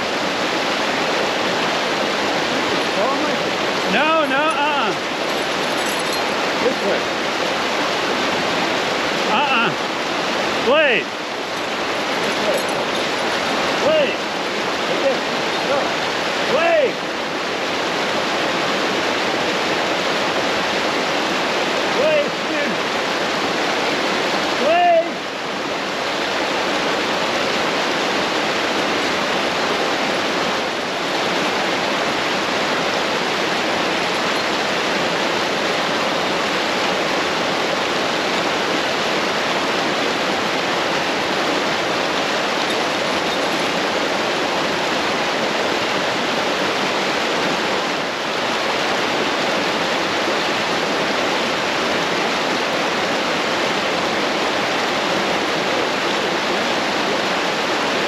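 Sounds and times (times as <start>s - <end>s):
brook rushing: 27.2s - 45.8s.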